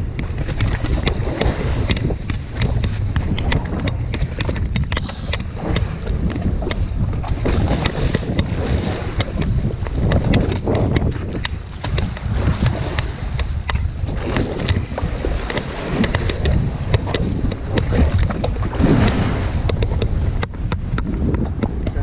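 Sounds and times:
waves splashing against hull: 0.0 - 22.0
wind buffeting microphone: 0.0 - 22.0
sharp clicks: 1.4 - 6.9.

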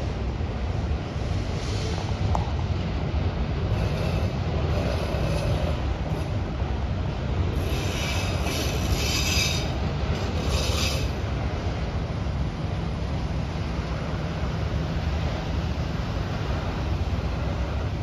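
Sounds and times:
freight cars rumbling on rails: 0.0 - 18.0
high-pitched wheel squeal: 3.7 - 6.3, 7.5 - 11.2.

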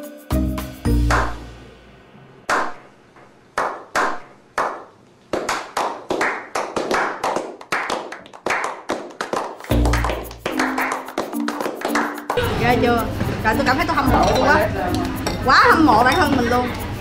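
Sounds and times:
men clapping: 1.1 - 1.4, 3.6 - 12.4.

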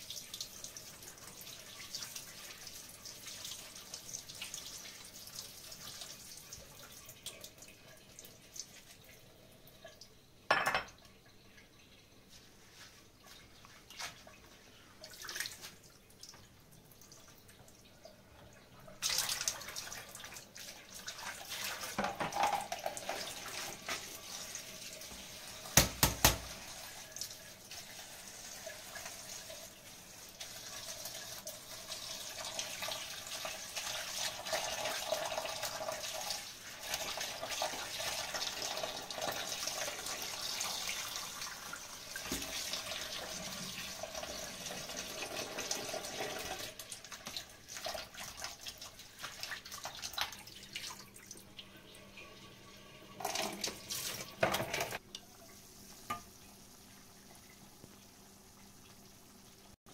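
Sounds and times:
tap water running into sink: 19.0 - 56.8.

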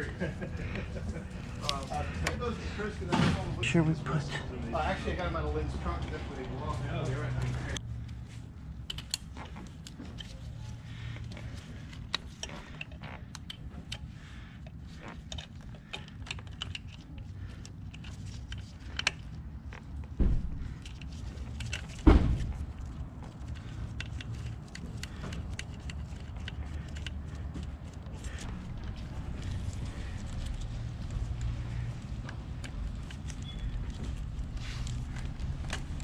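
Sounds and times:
small clicks and rustles: 7.3 - 36.0.

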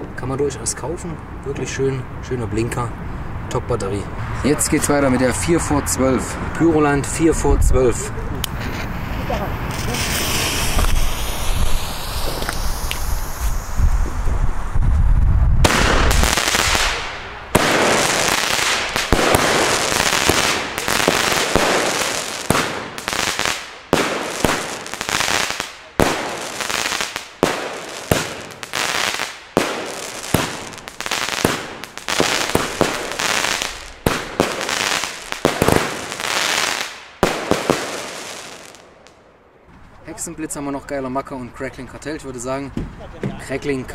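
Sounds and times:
firework battery shots and bursts: 8.5 - 13.8, 15.6 - 39.2.

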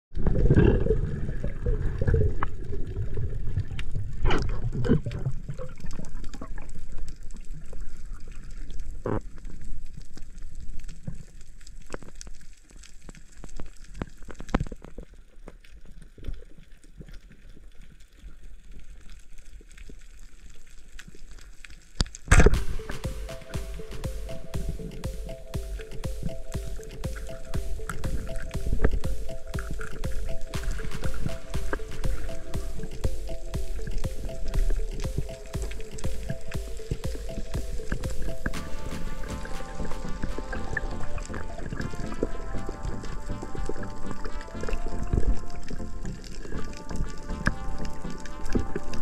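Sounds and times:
underwater rumble and gurgling: 0.1 - 22.0
sharp underwater clicks: 22.0 - 42.5.

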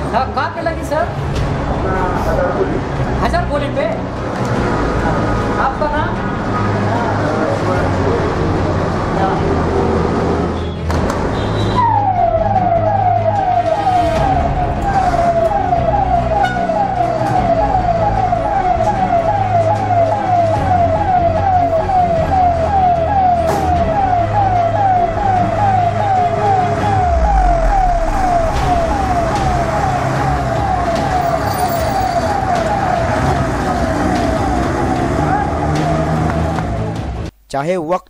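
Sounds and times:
fire engine siren yelping: 11.4 - 37.3
truck engine running: 16.9 - 37.3.

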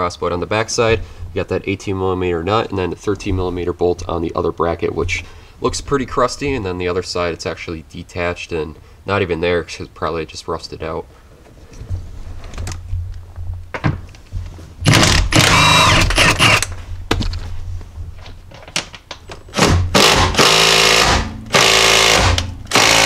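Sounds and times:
impact wrench hammering: 14.8 - 16.7, 19.5 - 23.0.

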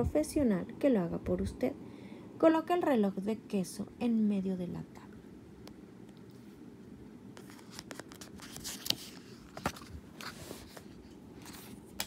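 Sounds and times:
book pages turning: 7.4 - 12.0.

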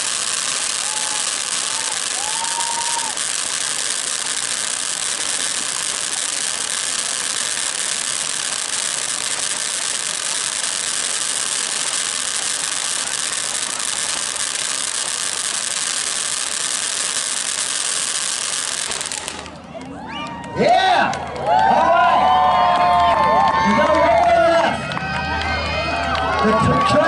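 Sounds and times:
firework fountain hissing: 0.0 - 20.0.

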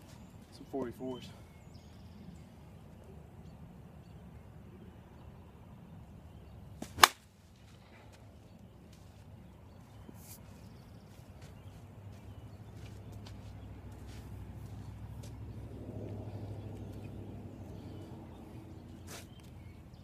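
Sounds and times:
softball bat hitting ball crack: 6.8 - 7.3.

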